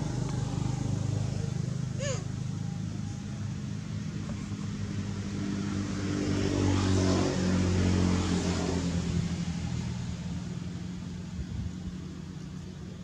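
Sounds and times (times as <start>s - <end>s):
vehicle engine humming: 0.0s - 8.0s.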